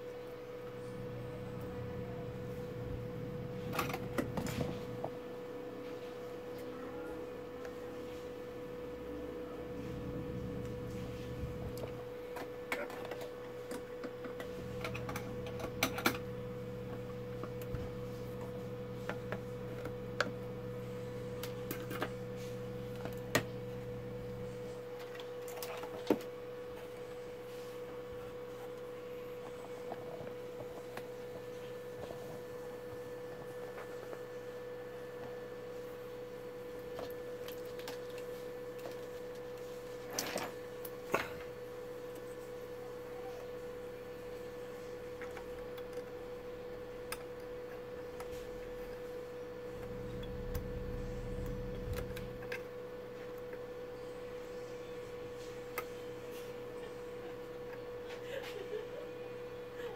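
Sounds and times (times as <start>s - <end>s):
low hum: 0.0s - 12.4s, 48.1s - 56.2s.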